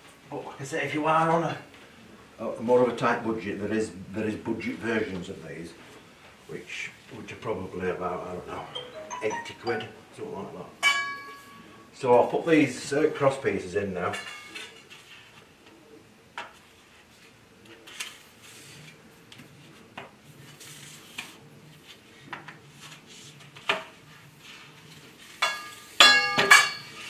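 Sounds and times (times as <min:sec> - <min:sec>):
metal tubes knocking and clinking: 0:10.8 - 0:11.5, 0:25.4 - 0:26.9
metal tube ringing: 0:10.8 - 0:11.7.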